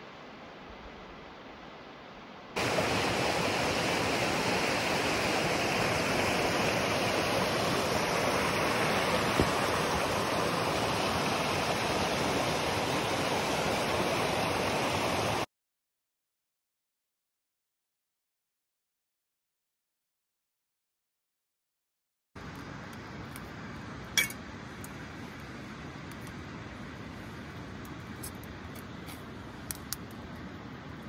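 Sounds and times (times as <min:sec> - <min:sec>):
faint hiss: 0:00.0 - 0:15.4
stream rushing over rocks: 0:02.6 - 0:15.5.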